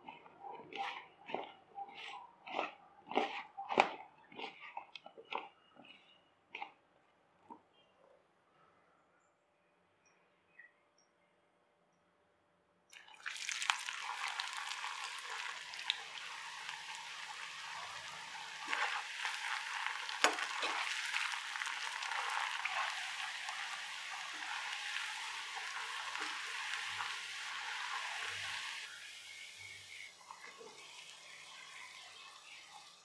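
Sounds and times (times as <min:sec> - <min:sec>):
food deep-frying in hot oil: 0:13.0 - 0:33.0.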